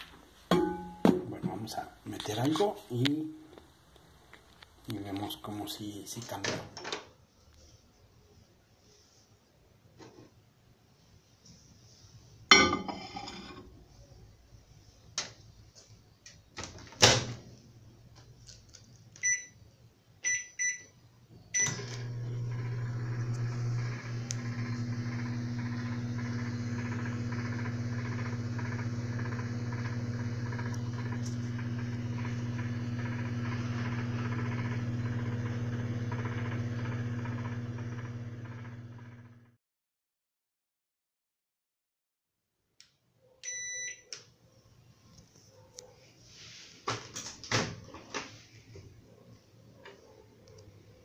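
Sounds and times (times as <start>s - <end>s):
keypad beeps: 19.2s - 19.6s, 20.2s - 20.9s, 43.4s - 44.1s
microwave oven humming: 21.6s - 39.6s.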